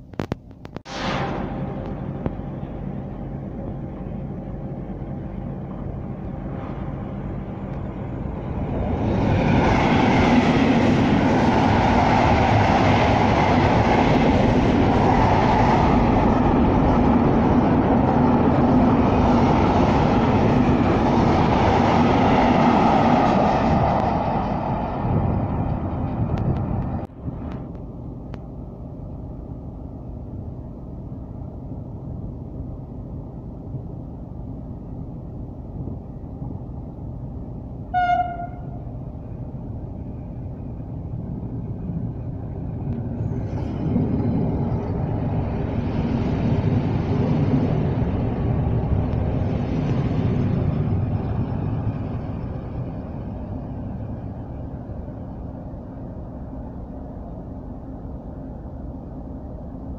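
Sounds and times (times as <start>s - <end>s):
freight train wheels on rail: 0.0s - 59.9s
quiet steady rumble: 25.7s - 46.1s.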